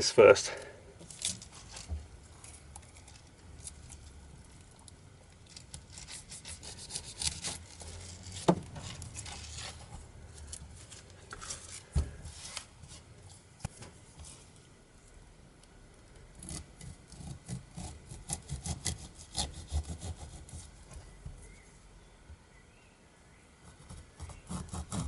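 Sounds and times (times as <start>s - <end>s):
knife cutting pineapple skin: 5.6s - 9.9s, 16.4s - 20.7s, 23.8s - 25.0s.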